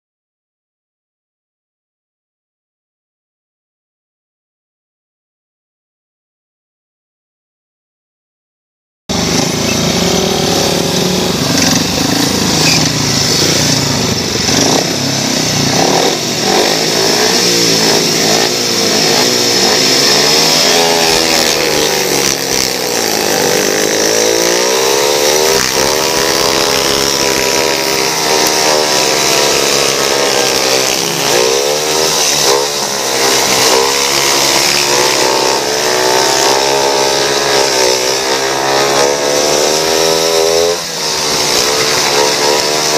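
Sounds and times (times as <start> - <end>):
motorbike engines racing: 9.1 - 42.9.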